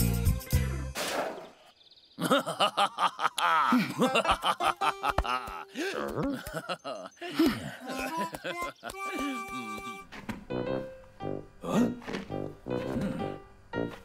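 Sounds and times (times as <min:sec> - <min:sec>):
cartoon characters mumbling gibberish: 0:05.4 - 0:06.7, 0:11.6 - 0:12.1.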